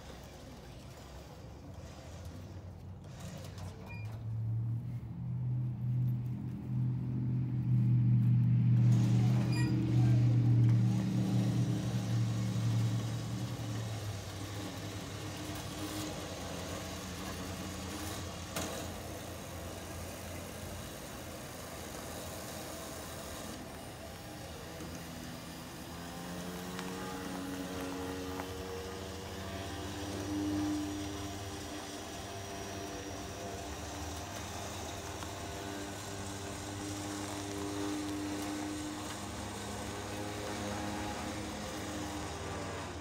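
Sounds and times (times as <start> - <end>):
vehicle rolling down metal ramps: 0.0 - 4.7, 8.7 - 43.0
motor humming: 8.8 - 43.0.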